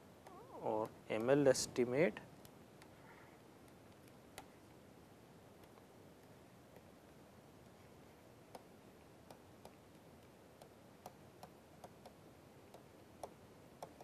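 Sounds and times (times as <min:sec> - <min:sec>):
stylus tapping on tablet screen: 0:00.1 - 0:01.6, 0:03.6 - 0:04.8, 0:05.6 - 0:07.8, 0:08.5 - 0:14.0.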